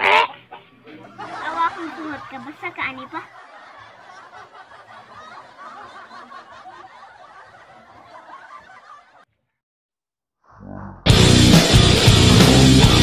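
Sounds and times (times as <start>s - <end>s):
people chattering and laughing: 0.8s - 9.2s.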